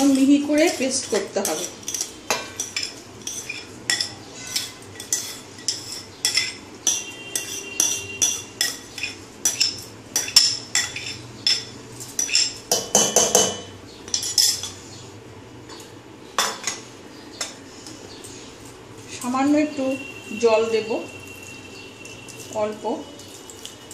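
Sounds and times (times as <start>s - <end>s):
spoon clinking against bowl: 0.0s - 14.8s.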